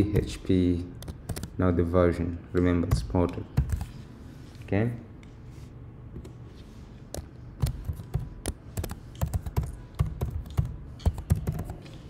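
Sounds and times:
computer keyboard typing: 1.0 - 1.6, 2.9 - 4.0, 7.6 - 12.0.

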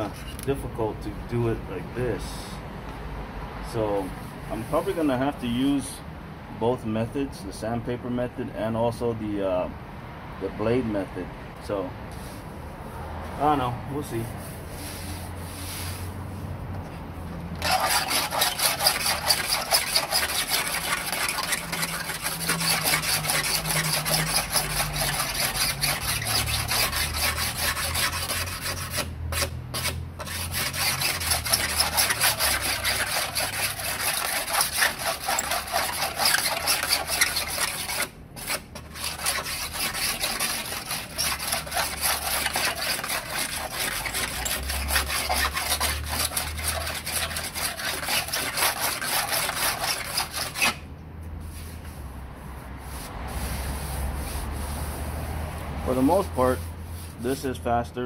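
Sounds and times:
scraping and sanding strokes: 4.0 - 5.6, 12.1 - 16.5, 17.6 - 57.6.

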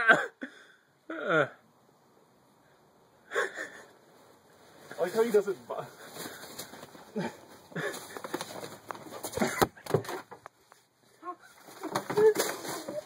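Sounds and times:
sharp knocks and clatters: 8.2 - 10.6.

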